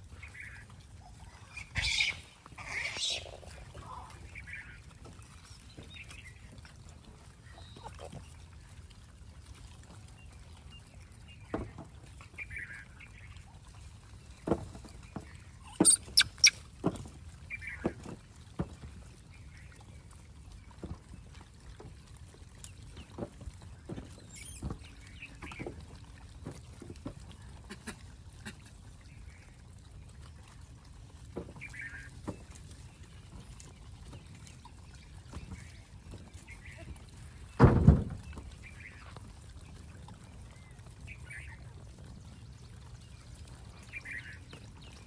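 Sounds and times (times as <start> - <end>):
monkeys calling: 1.3 - 4.0, 15.6 - 16.6.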